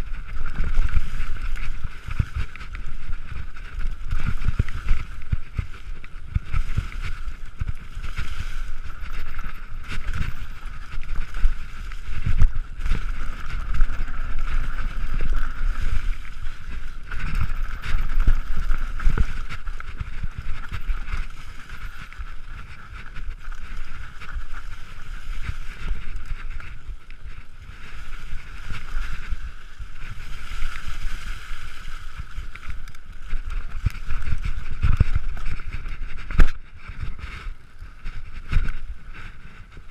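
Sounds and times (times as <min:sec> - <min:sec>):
wind on microphone: 0:00.0 - 0:39.9
bike thumping over roots and rocks: 0:00.2 - 0:26.7.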